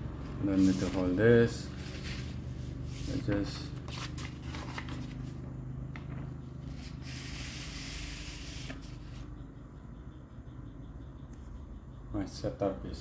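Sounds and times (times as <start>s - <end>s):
paper rustling: 0.6s - 5.4s
paper sliding hiss: 6.8s - 9.2s.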